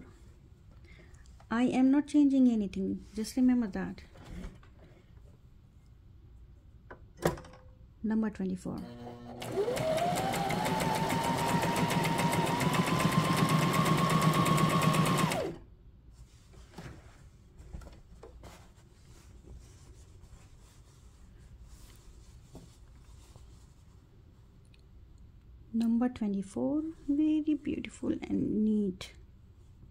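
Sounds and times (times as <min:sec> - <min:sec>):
sewing machine stitching: 0:08.8 - 0:15.6
fabric rustling: 0:16.1 - 0:24.1.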